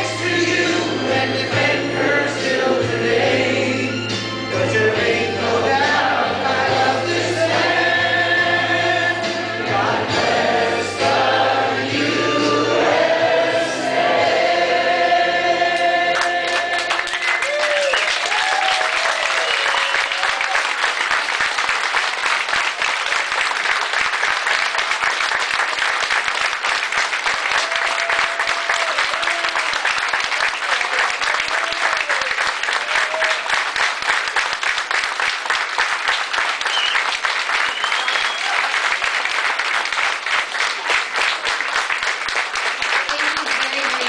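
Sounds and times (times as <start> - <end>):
audience clapping: 15.7 - 44.0.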